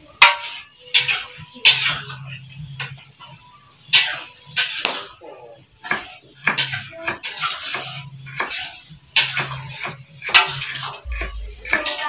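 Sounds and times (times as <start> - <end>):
knife chopping on wooden board: 5.9 - 7.8.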